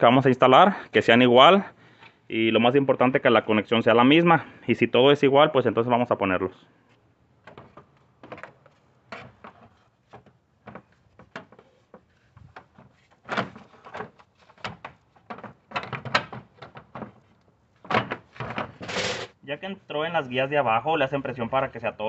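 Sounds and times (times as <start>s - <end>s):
plastic rubbing scrapes: 18.2s - 19.4s.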